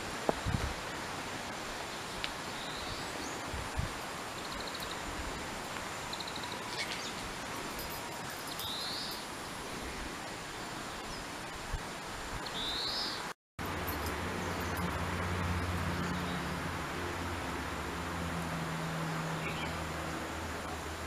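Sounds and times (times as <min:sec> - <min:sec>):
steady background hiss: 0:00.0 - 0:21.0
small birds chirping: 0:06.1 - 0:09.3.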